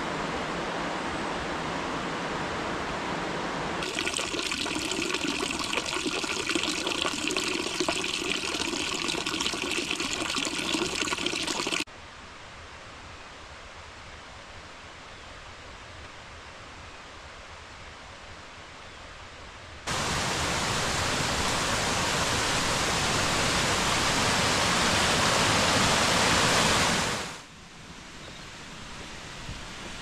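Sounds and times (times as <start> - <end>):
water pouring into trough: 3.8 - 11.9.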